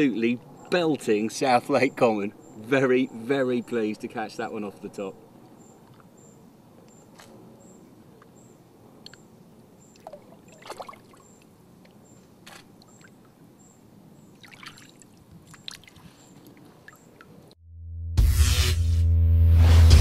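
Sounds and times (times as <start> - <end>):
trickling water: 9.8 - 13.5, 14.2 - 17.6
small water splashes: 9.9 - 13.4, 14.2 - 17.5.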